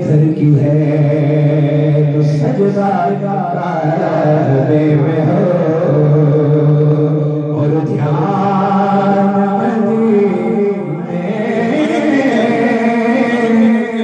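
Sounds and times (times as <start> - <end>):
man chanting devotional poem: 0.0 - 14.0.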